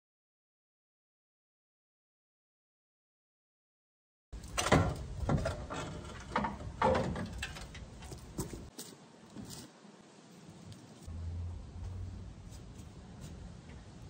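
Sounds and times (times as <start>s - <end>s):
metal bumper clanking and rattling: 4.4s - 8.7s.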